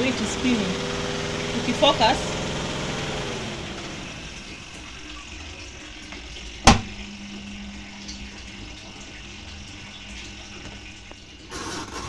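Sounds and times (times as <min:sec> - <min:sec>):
washing machine spinning: 0:00.0 - 0:12.0
water draining: 0:00.0 - 0:12.0
sharp knock: 0:06.7 - 0:06.9.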